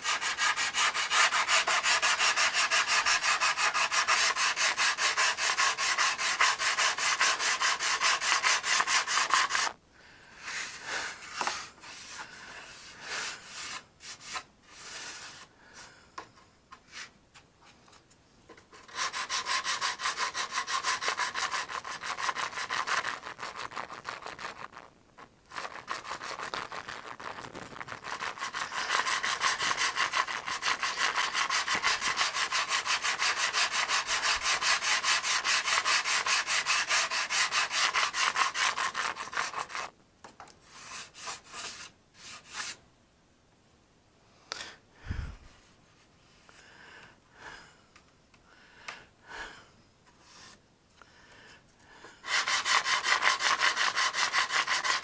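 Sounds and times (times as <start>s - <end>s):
sandpaper rubbing: 0.0s - 9.8s, 10.4s - 15.5s, 18.8s - 39.9s, 40.6s - 42.8s, 52.2s - 55.0s.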